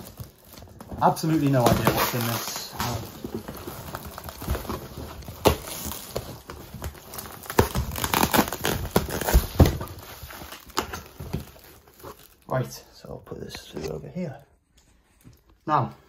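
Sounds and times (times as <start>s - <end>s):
plastic wrapping crinkling and tearing: 0.0s - 14.4s
sharp cracks and knocks: 4.2s - 11.7s.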